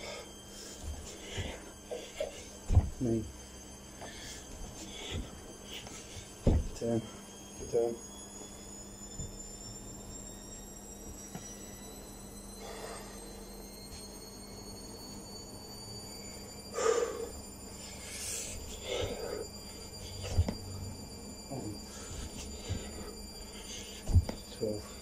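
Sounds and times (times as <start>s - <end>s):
person breathing hard: 0.0s - 2.7s, 4.0s - 6.4s, 12.6s - 13.3s, 16.7s - 20.4s, 21.8s - 24.1s
thump on carpeted floor: 2.7s - 3.1s, 6.4s - 6.8s, 20.2s - 20.7s, 24.0s - 24.5s.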